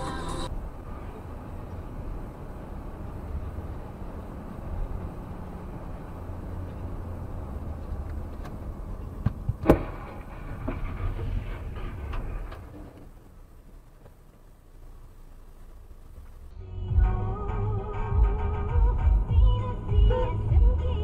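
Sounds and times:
car road and engine drone: 0.0 - 21.0
car collision crash: 9.2 - 13.0.

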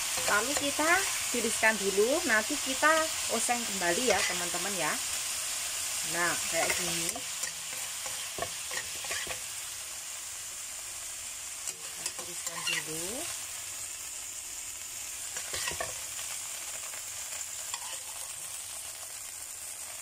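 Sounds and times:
spatula scraping a pan: 0.0 - 1.4, 3.9 - 4.6, 6.4 - 9.6, 11.6 - 13.0, 15.2 - 16.3, 17.5 - 18.6
chicken sizzling in hot oil: 0.0 - 20.0.

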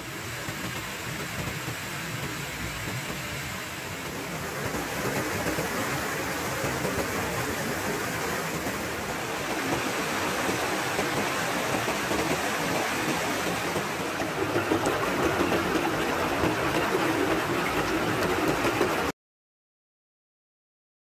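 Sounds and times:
stream rushing over stones: 4.1 - 19.1.

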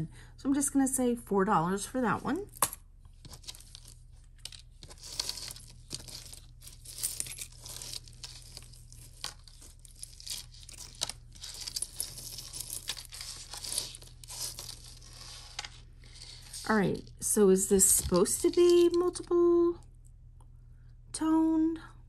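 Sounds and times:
packaging crinkling and rustling: 3.2 - 17.1.

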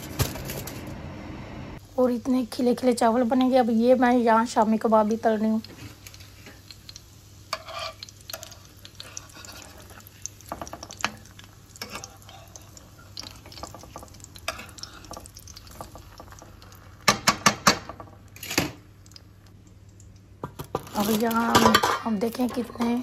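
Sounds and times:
kebabs frying in bubbling oil: 1.8 - 23.0
metal spatula scraping a pan: 7.5 - 16.0.

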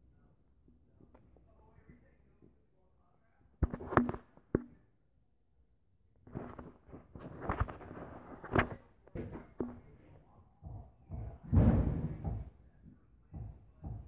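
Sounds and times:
knocks and thumps on phone: 3.6 - 4.8, 8.4 - 9.9, 10.6 - 12.6, 13.3 - 14.0.

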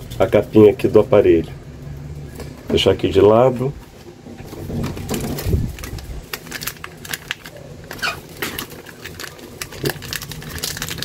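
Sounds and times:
plastic packaging rustling: 3.9 - 11.0
hands handling package: 4.1 - 11.0.

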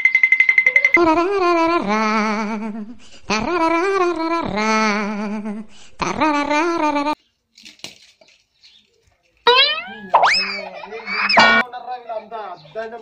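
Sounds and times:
person singing a melody: 1.0 - 7.2.

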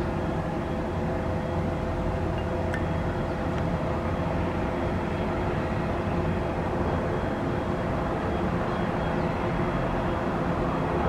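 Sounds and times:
turboprop engine droning: 0.0 - 11.0.

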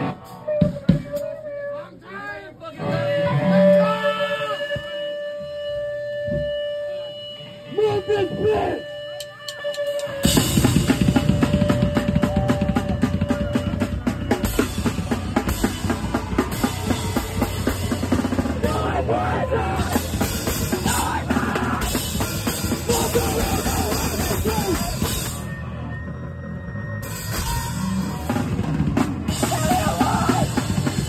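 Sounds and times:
drum kit: 9.7 - 25.7, 27.0 - 31.0
electric bass: 10.2 - 31.0
person singing: 22.8 - 25.1.

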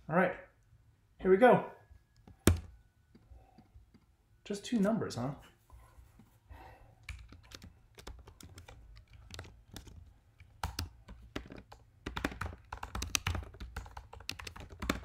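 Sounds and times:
typing on a computer keyboard: 7.0 - 15.0.

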